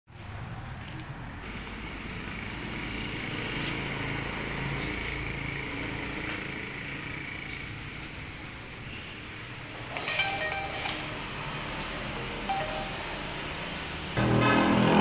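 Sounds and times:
sprayer hissing: 1.4s - 8.6s.

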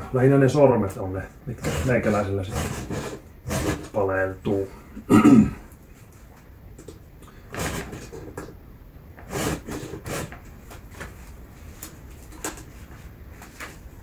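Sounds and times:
file rasping on chainsaw chain: 1.6s - 4.0s.

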